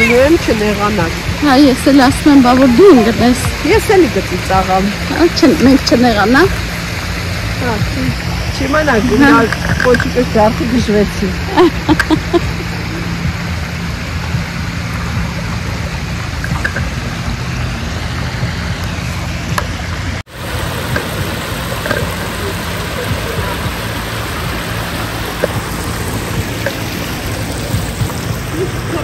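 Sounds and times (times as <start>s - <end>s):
creek water flowing over rocks: 0.0s - 29.0s.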